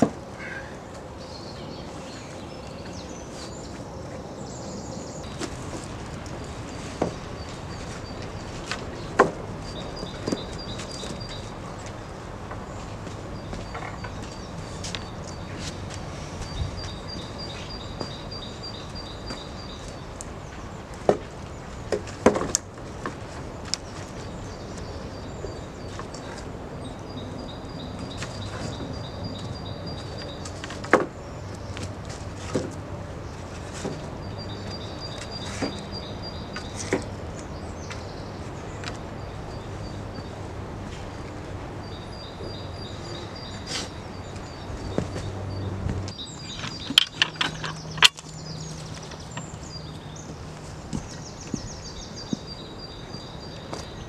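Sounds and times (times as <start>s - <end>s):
wooden poles knocking together: 21.9s - 23.2s, 46.5s - 48.3s.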